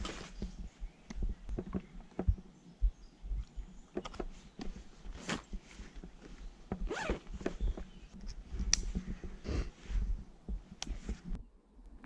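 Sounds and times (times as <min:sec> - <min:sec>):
fabric and gear clicks: 0:03.4 - 0:09.3
clothing zipper pulled: 0:06.8 - 0:07.4.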